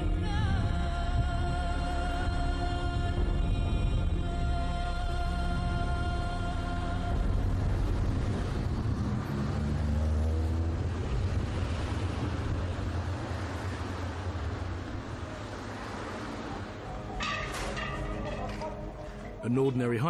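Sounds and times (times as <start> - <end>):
car engine: 5.2 - 19.4
street traffic: 5.2 - 20.0.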